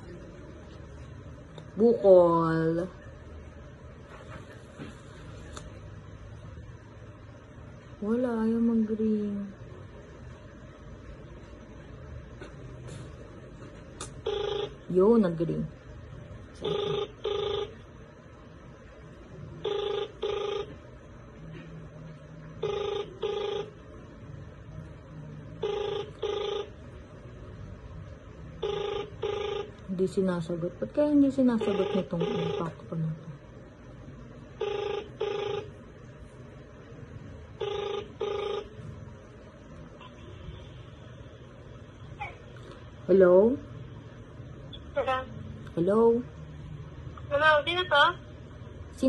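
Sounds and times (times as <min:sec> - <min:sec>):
phone ringback tone: 0:14.2 - 0:14.9, 0:16.6 - 0:17.8, 0:19.6 - 0:20.8, 0:22.6 - 0:23.8, 0:25.6 - 0:26.9, 0:28.6 - 0:29.9, 0:31.6 - 0:32.9, 0:34.6 - 0:35.8, 0:37.6 - 0:38.9.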